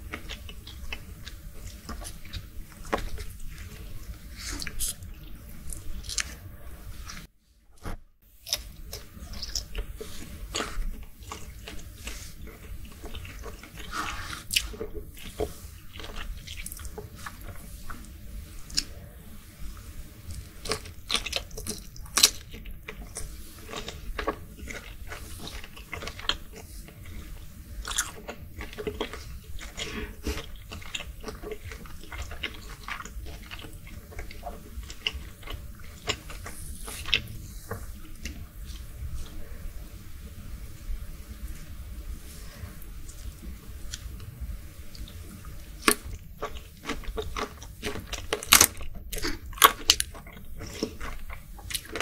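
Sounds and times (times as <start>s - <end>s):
wet chewing and mouth clicks: 0.0s - 6.4s, 8.4s - 19.0s, 20.2s - 39.5s, 43.0s - 52.0s.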